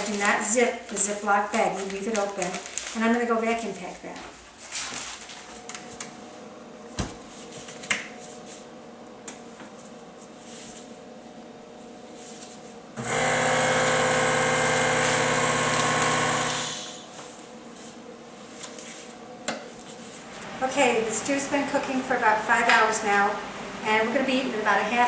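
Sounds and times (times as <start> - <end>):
vacuum pump motor humming: 13.0 - 17.0.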